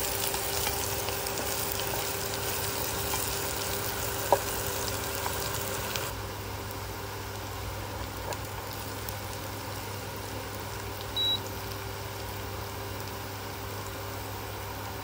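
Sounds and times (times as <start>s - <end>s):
food sizzling in oil: 0.0s - 15.0s
short high beep: 11.2s - 11.4s.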